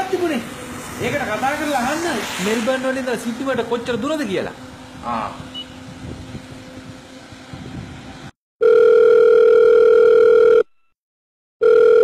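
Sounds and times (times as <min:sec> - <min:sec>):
faint outdoor background: 0:00.0 - 0:11.0
electronic telephone ringing: 0:08.6 - 0:10.8, 0:11.6 - 0:12.0.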